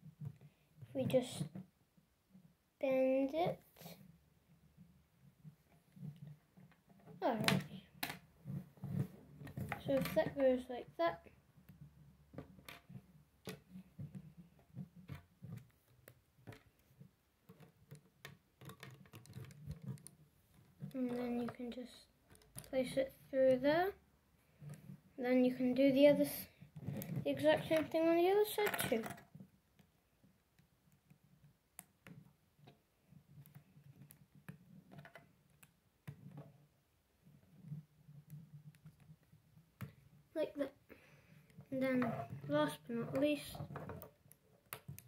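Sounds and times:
plastic pieces clicking together: 17.5s - 20.2s, 26.9s - 29.9s.

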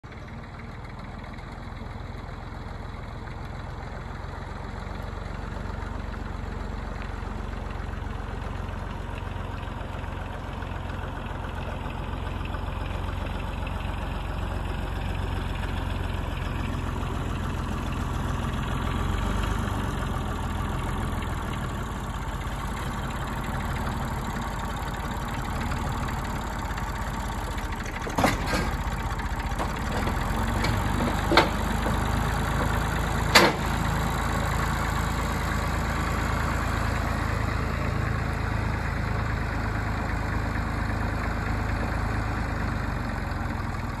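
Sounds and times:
tractor engine running: 0.0s - 44.0s
logs knocking into wooden trailer: 27.9s - 33.8s.

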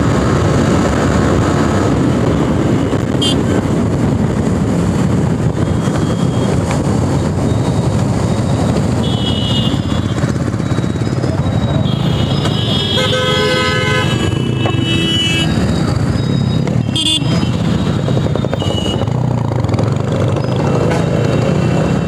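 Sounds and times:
motorcycle engine and road rumble: 0.0s - 22.0s
vehicle horns honking: 3.1s - 3.6s, 8.9s - 10.3s, 11.8s - 15.8s, 16.8s - 19.1s.

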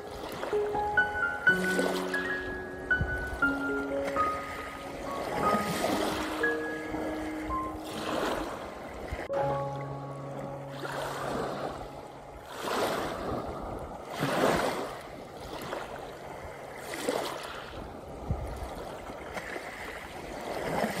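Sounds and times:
waves washing over pebbles: 0.0s - 9.5s, 10.7s - 21.0s.

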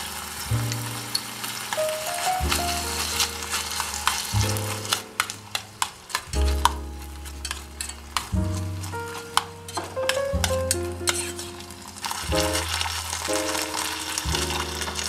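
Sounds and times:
background music low notes: 0.0s - 15.0s
meat and vegetables sizzling: 0.0s - 15.0s
metal spoon scraping pan: 3.0s - 12.2s.

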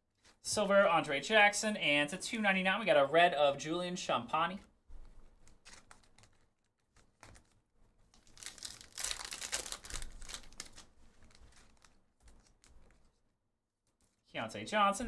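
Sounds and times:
foil wrapper tearing and crinkling: 8.2s - 12.9s.

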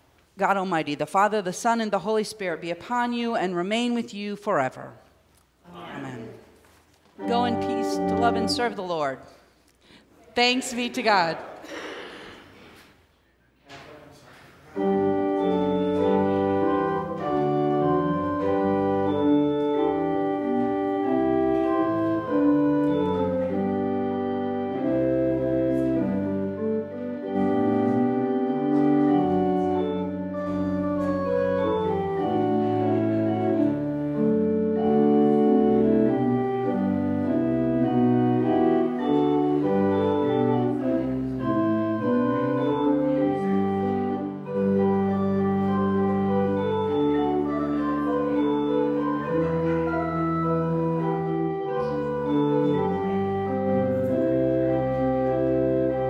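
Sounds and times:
pipe organ chords: 7.2s - 9.2s, 14.7s - 56.0s.

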